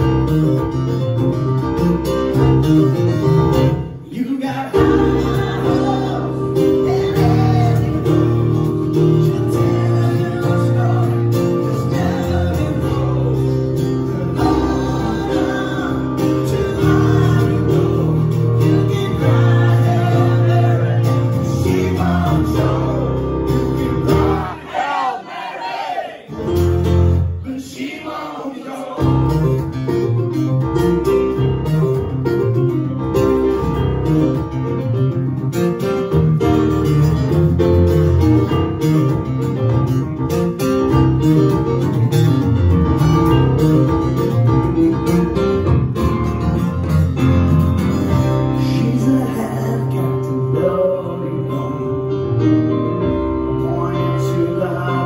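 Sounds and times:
acoustic guitar and piano playing: 0.0s - 25.4s, 26.2s - 28.0s, 28.6s - 55.0s
man singing: 2.9s - 23.6s, 27.4s - 29.2s, 48.4s - 55.0s.

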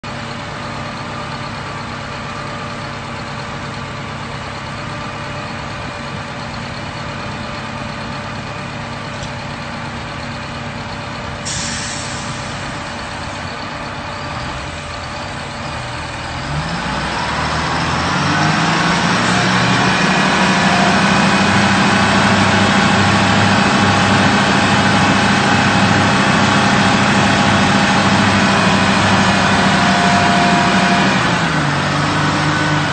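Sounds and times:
heavy engine running and revving: 0.0s - 32.9s
short hiss: 11.5s - 12.7s.

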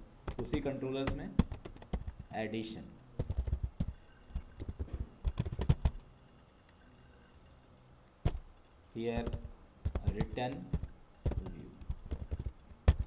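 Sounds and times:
keyboard typing: 0.2s - 2.4s, 3.2s - 6.0s, 8.2s - 13.0s.

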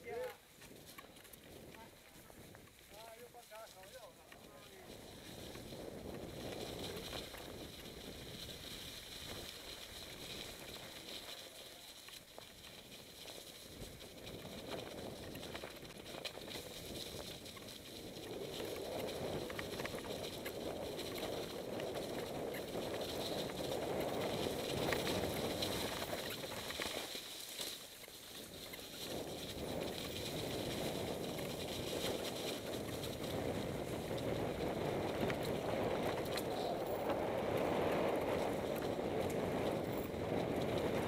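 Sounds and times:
bike rattles and clicks: 0.1s - 41.0s
bike tyres rustling through leaves: 0.1s - 41.0s.

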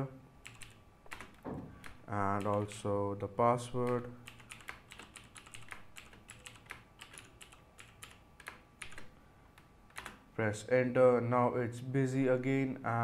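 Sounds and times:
keyboard keys clicking: 0.4s - 2.8s, 3.8s - 10.2s.

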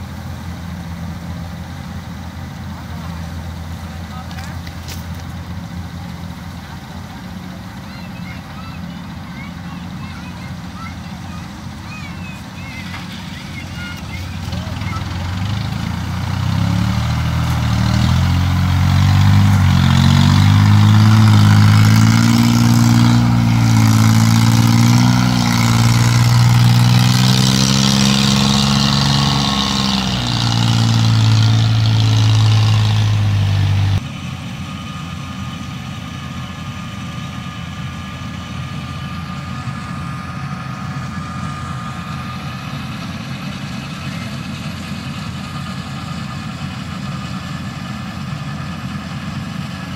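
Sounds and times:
harvester engine running: 0.0s - 49.9s.

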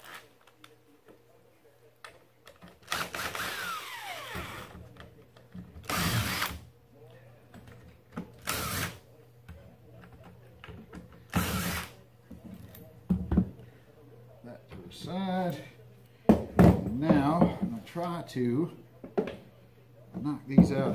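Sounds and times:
cordless drill motor whine: 2.9s - 4.7s.

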